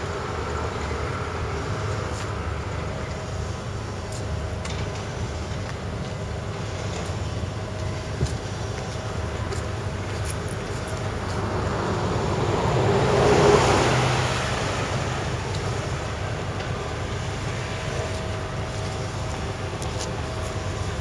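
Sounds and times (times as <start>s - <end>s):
street traffic hum: 0.0s - 21.0s
vehicle passing by: 11.4s - 15.5s.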